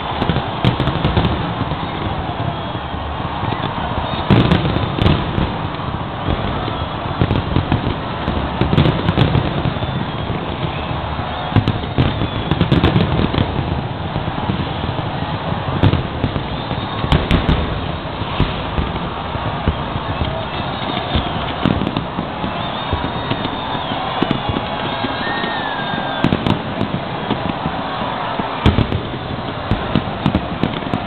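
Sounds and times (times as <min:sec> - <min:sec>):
fireworks booming and crackling: 0:00.0 - 0:31.0
sharp firework bursts: 0:00.0 - 0:31.0.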